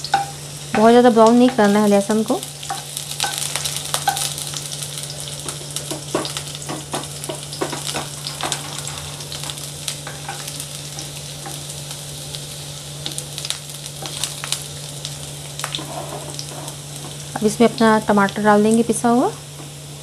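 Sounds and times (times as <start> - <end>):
garlic sizzling in hot oil: 0.0 - 20.0
spatula scraping and tapping pan: 5.4 - 11.6, 15.6 - 17.5.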